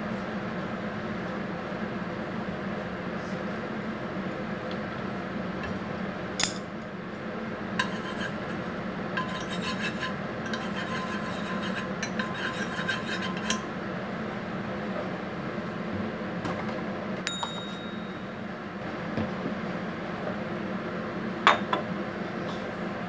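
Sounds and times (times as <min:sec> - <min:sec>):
utensil scraping in pot: 0:07.7 - 0:13.7.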